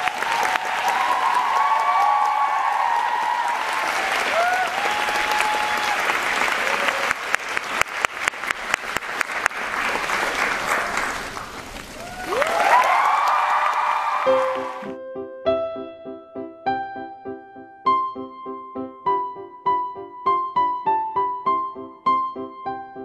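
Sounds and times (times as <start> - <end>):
shrill cheers and screams: 0.0 - 7.2, 12.0 - 14.9
loud close hand claps: 0.0 - 14.8
audience applauding: 0.0 - 15.0.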